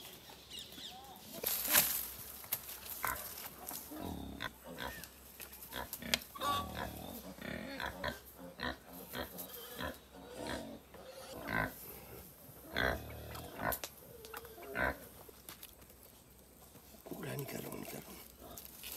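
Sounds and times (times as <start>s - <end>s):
farm animals grunting: 2.9s - 15.3s, 16.6s - 18.9s.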